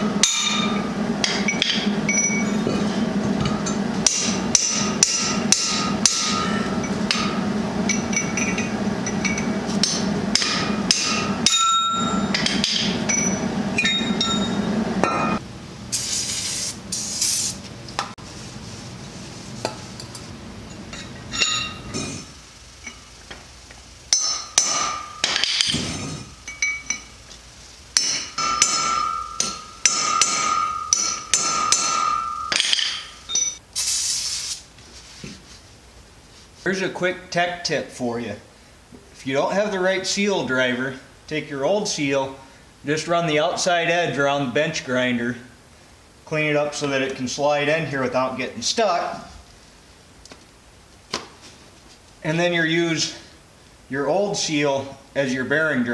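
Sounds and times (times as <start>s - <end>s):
hammer striking steel: 0.0s - 15.4s, 24.1s - 27.1s, 28.0s - 33.6s
spray hiss: 15.9s - 17.6s, 33.7s - 34.7s.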